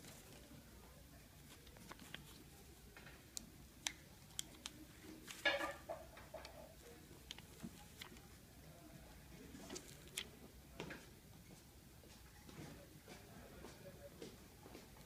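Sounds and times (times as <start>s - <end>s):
faint clicks and taps: 1.4s - 8.4s
package crinkling: 1.5s - 2.5s.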